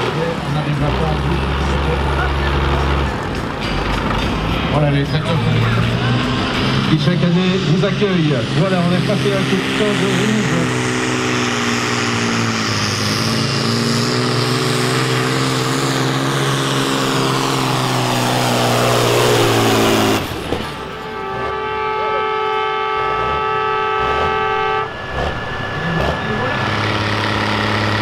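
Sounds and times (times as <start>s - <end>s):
tractor diesel engine under load: 0.0s - 28.0s
steady high tone: 20.7s - 28.0s.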